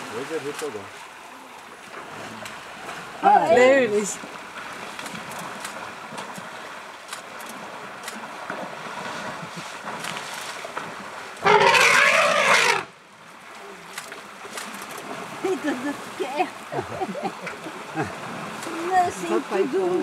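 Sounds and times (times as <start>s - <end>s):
elephants splashing in muddy water: 0.0s - 20.0s
elephant trumpeting: 11.4s - 12.9s.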